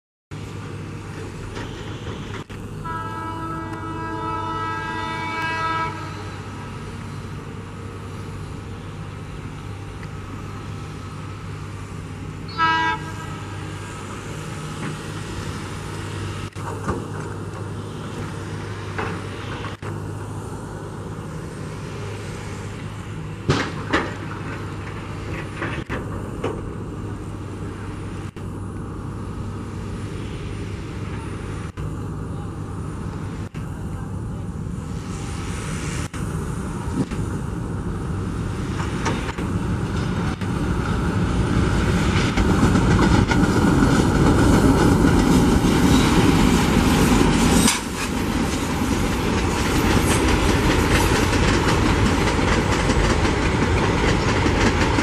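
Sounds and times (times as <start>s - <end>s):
diesel locomotive engine drone: 0.3s - 55.0s
locomotive horn: 2.8s - 6.6s, 12.5s - 13.7s.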